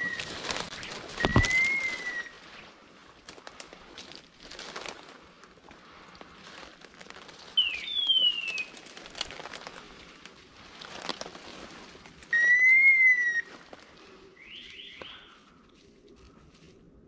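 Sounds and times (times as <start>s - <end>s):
crackling of brush and twigs: 0.0s - 17.0s
dog whistle blown: 12.3s - 13.4s.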